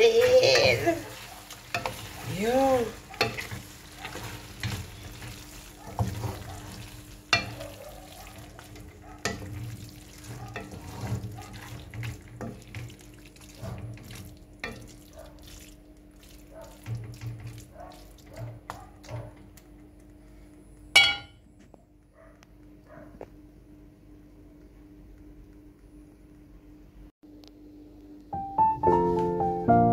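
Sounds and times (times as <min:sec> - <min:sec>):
utensil stirring saucy spaghetti: 0:00.0 - 0:19.3
metal clank on pan: 0:21.0 - 0:21.4.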